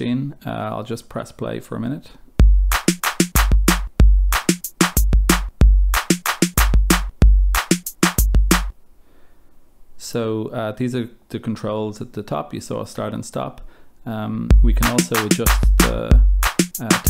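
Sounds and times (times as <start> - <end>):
drum machine beat: 2.4 - 8.7, 14.5 - 17.0.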